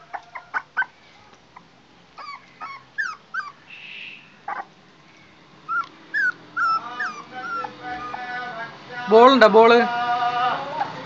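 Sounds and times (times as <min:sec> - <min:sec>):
puppy whimpering: 0:00.0 - 0:03.7, 0:04.4 - 0:04.8, 0:05.7 - 0:08.6.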